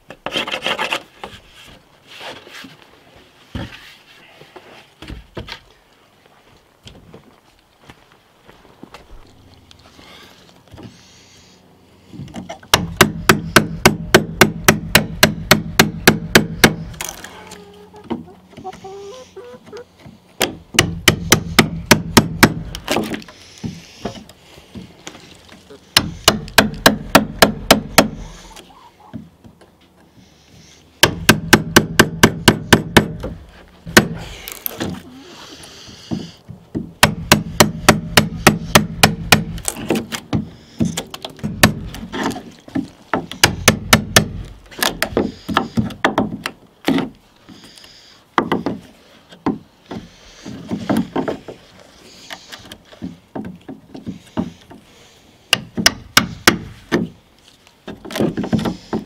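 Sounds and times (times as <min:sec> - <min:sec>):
chisel scraping wood: 0:00.2 - 0:01.4
hammer tapping a wood chisel: 0:55.5 - 0:57.0.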